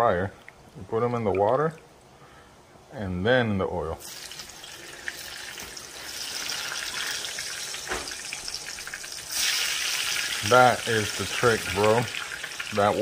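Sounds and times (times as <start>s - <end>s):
oil sizzling in a frying pan: 4.0s - 13.0s.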